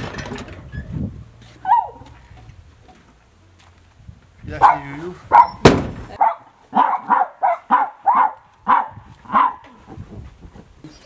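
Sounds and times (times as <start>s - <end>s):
dog barking: 4.6s - 5.6s, 6.2s - 9.6s
sharp bang: 5.6s - 6.2s.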